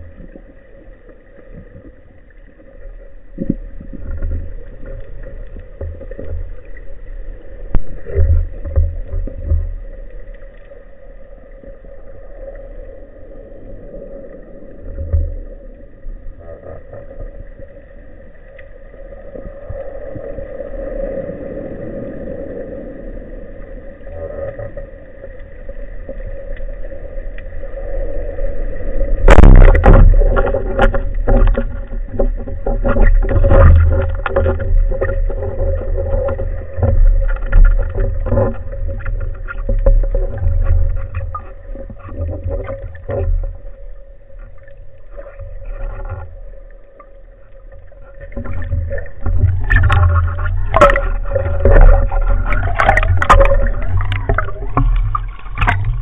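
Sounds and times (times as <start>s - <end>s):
rumbling water: 0.0s - 56.0s
underwater hum with held tone: 0.0s - 56.0s.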